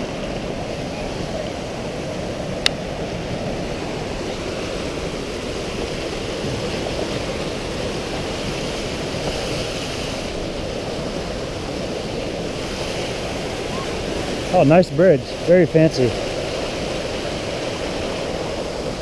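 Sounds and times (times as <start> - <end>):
creek rushing over cascades: 0.0 - 19.0.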